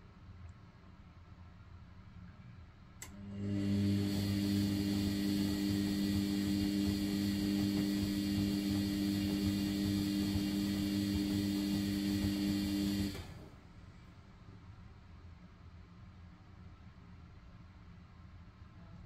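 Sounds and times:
washing machine motor humming: 3.0 - 13.6.

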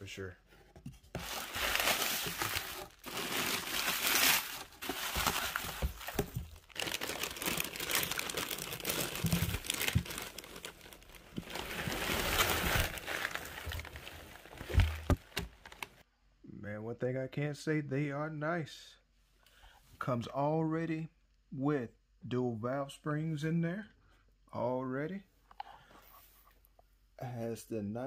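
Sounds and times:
bubble wrap crinkling: 1.2 - 16.0.

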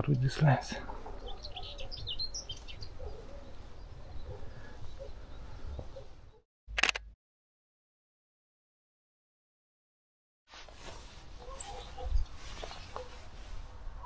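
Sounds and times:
small birds chirping: 0.0 - 6.4, 11.4 - 13.3.

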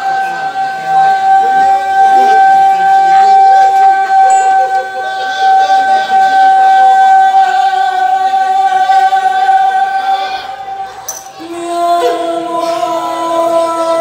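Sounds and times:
woman singing a ballad: 11.4 - 14.0.

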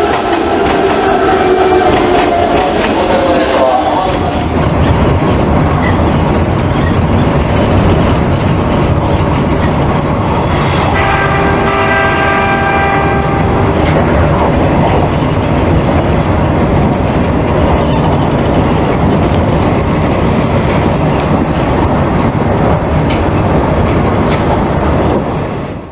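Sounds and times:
train horn blast: 0.0 - 4.4, 10.7 - 14.1
electric train running: 0.0 - 25.9.

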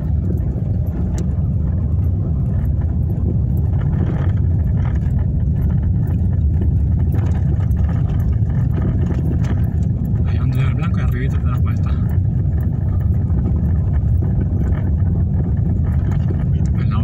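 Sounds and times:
car rumbling over rough pavement: 0.0 - 17.0.

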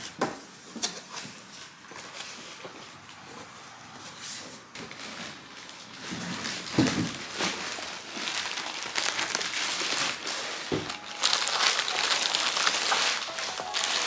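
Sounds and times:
plastic bag crinkling: 4.9 - 14.0.

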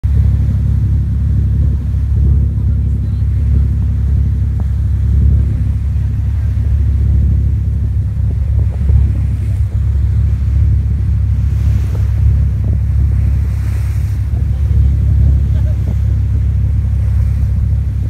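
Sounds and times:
boat engine rumbling: 0.0 - 18.0
water noise: 0.0 - 18.0
wind noise: 0.0 - 18.0.

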